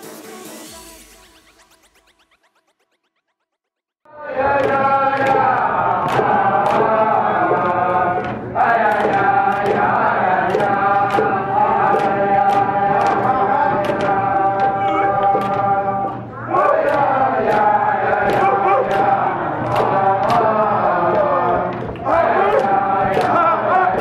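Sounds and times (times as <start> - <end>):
group of voices chanting: 4.1 - 24.0
frame drums beating: 4.5 - 24.0.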